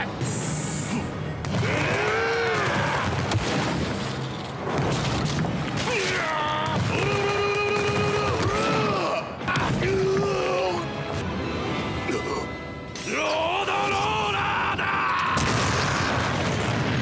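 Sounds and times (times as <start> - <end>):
man shouting battle cries: 5.8 - 10.9, 13.0 - 15.5.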